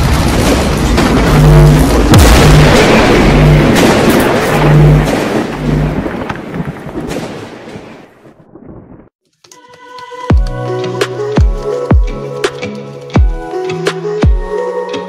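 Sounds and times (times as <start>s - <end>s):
loud rush of noise: 0.0s - 6.0s
deep low hum: 0.9s - 6.1s
music: 9.3s - 15.0s.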